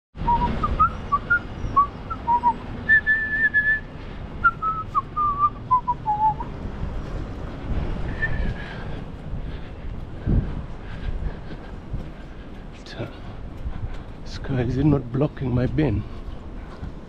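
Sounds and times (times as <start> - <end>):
person whistling a tune: 0.2 - 6.5.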